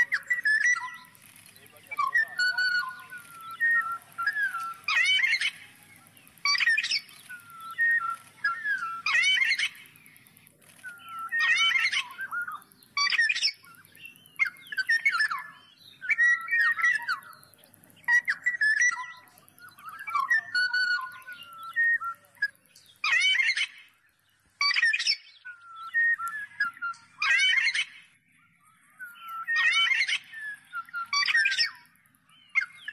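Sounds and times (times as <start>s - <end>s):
bird whistling fluty phrases: 0.0s - 23.9s, 24.6s - 32.9s.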